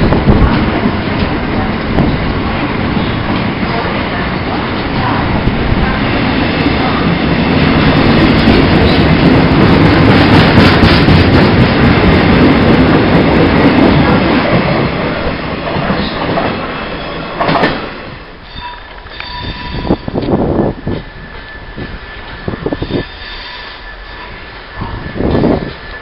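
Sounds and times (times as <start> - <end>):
train wheels clattering over rails: 0.0 - 18.2.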